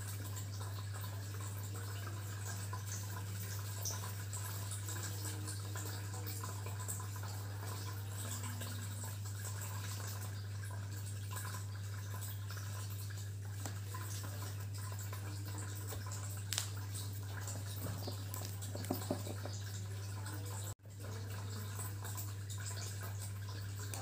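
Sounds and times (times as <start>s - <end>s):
light taps on glass bottle: 17.8s - 19.7s.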